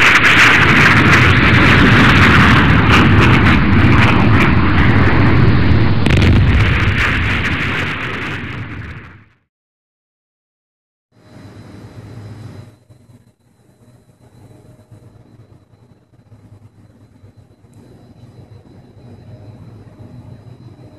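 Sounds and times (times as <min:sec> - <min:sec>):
dense rumbling noise: 0:00.0 - 0:09.4
scattered crackles: 0:00.0 - 0:09.4.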